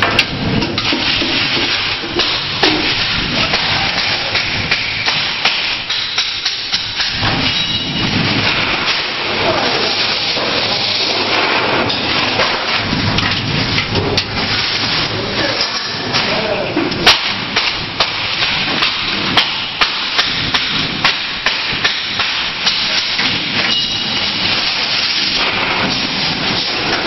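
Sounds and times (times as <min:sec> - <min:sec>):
spot welder snapping: 0:00.0 - 0:09.4, 0:15.6 - 0:27.0
loud steady noise: 0:00.0 - 0:27.0.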